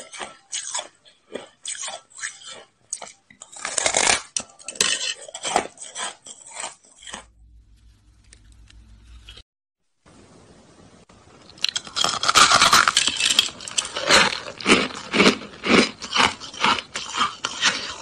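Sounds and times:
chewing crunchy shaved ice: 0.0s - 7.4s, 11.5s - 18.0s
faint low hum: 7.1s - 9.4s.

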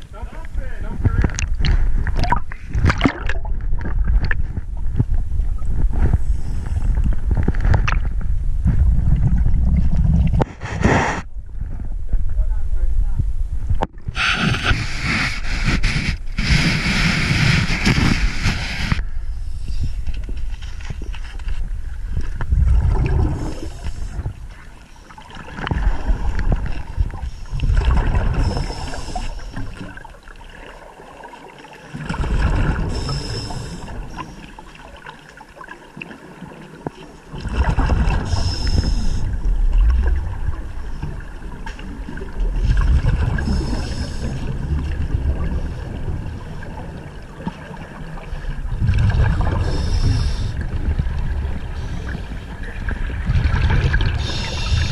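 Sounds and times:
exhaled bubbles rushing: 1.4s - 10.5s, 22.4s - 35.0s, 37.3s - 54.9s
diver breathing through regulator: 10.5s - 11.3s, 14.1s - 20.1s, 25.8s - 29.8s, 32.7s - 34.6s, 38.1s - 39.4s, 42.7s - 44.7s, 49.4s - 50.8s, 54.1s - 54.9s.

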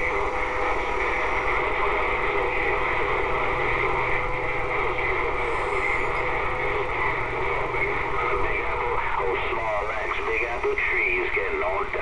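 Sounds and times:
radio static: 0.0s - 12.0s.

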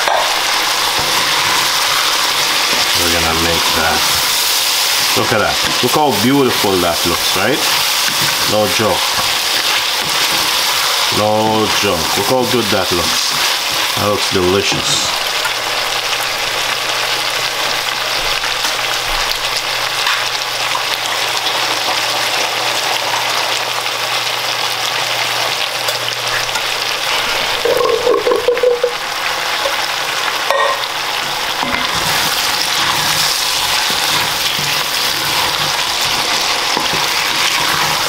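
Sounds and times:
vegetables sizzling in a pot: 0.0s - 38.0s
wooden spatula stirring: 0.7s - 14.9s, 31.2s - 38.0s.

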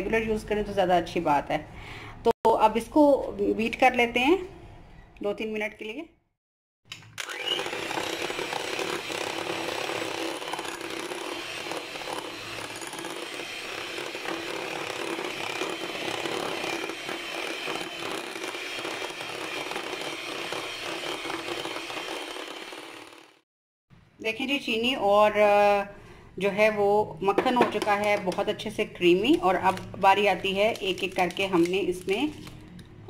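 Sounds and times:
electric hand mixer running: 7.2s - 23.4s.

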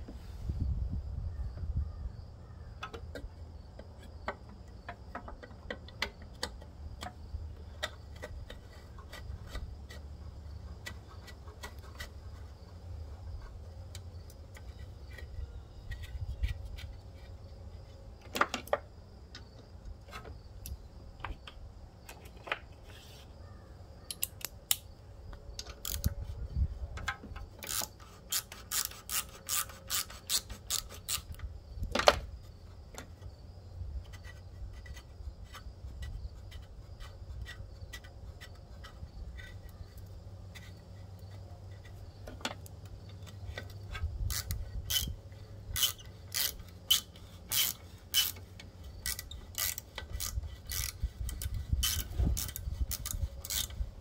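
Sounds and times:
metal parts and tools clicking: 24.1s - 24.9s, 25.6s - 26.2s, 26.9s - 32.2s, 41.6s - 53.9s
socket ratchet clicking: 25.6s - 26.2s, 27.6s - 31.4s, 43.2s - 53.8s.

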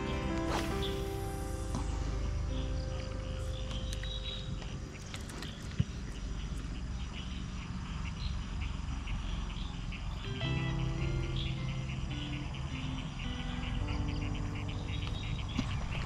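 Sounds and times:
low rumble: 0.0s - 6.7s
insects chirping: 0.0s - 16.0s.

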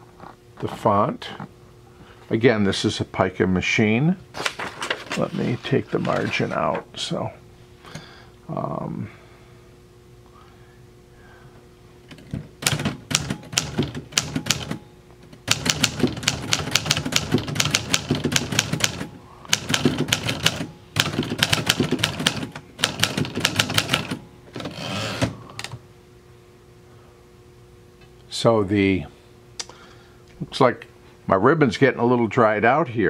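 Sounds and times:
typewriter carriage return: 12.1s - 14.8s, 15.4s - 25.7s
typewriter keys clacking: 15.5s - 24.2s.

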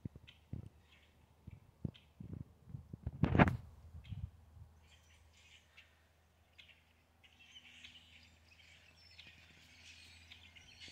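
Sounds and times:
distant songbirds chirping: 0.0s - 2.4s, 3.8s - 10.9s.

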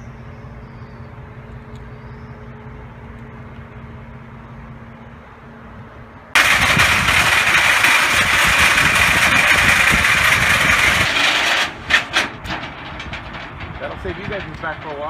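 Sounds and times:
hydraulic pump running: 6.4s - 15.0s.

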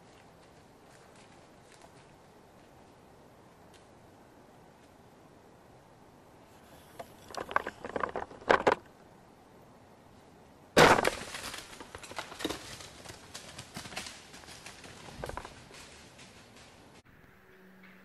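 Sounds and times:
dry leaves crunching: 10.8s - 17.0s.

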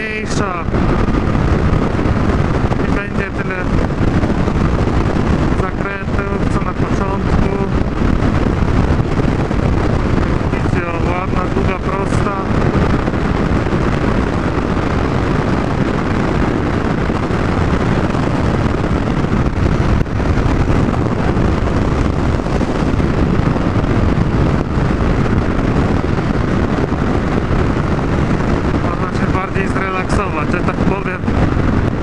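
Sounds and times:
wind rush on microphone: 0.0s - 32.0s.

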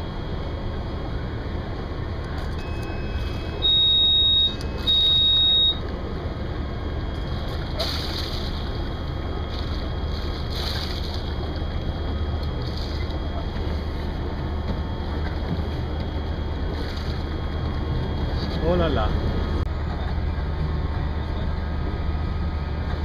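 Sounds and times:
diesel engine running low: 0.0s - 23.0s
high-pitched electronic beeps: 2.6s - 5.8s.

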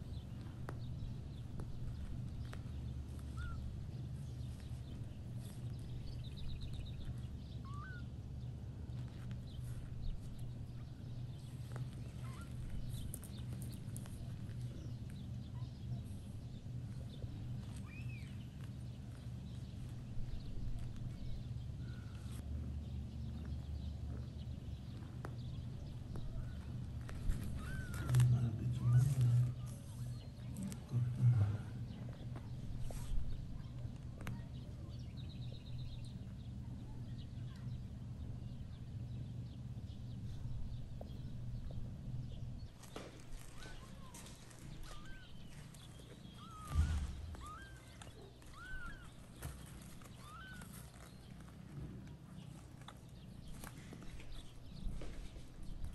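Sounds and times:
steady low hum: 0.0s - 55.9s
kitten mewing: 27.4s - 29.7s, 46.4s - 49.3s
pad rustling: 42.8s - 55.6s.

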